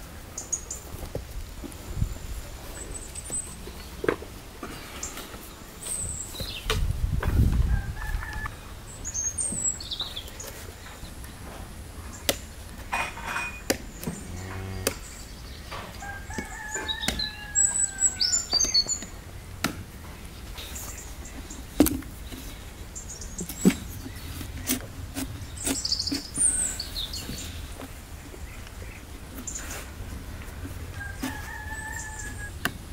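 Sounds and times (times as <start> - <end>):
chickens calling: 7.3 - 32.9
small birds calling: 7.6 - 32.9
knife cutting pumpkin rind: 23.4 - 26.8.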